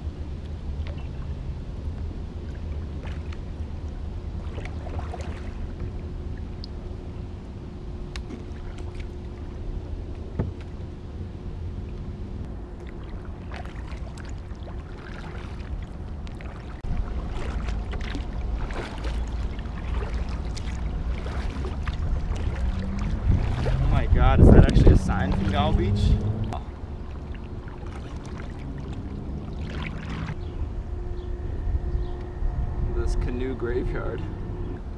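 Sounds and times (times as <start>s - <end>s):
steady low rumble: 0.0s - 34.9s
kayak paddle splashing in water: 2.4s - 3.5s, 4.3s - 6.0s, 8.1s - 9.7s, 12.8s - 30.4s
water drips: 12.8s - 23.8s.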